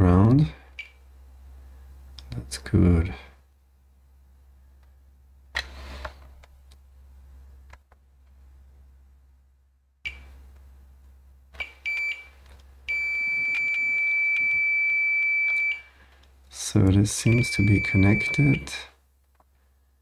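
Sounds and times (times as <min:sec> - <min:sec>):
multimeter continuity beeps: 0:11.6 - 0:12.3, 0:12.9 - 0:15.9, 0:17.2 - 0:18.8.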